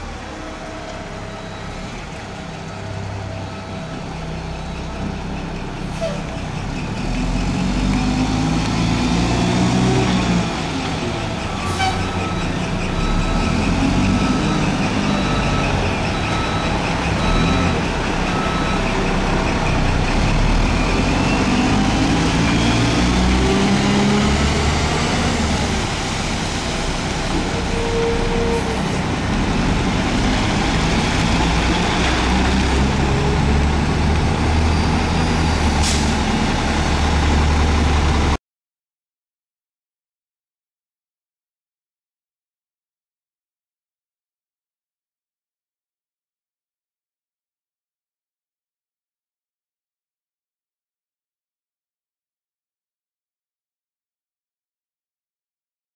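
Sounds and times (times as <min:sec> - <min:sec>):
garbage truck diesel engines revving: 0:00.0 - 0:38.4
air brake hiss: 0:35.8 - 0:36.2.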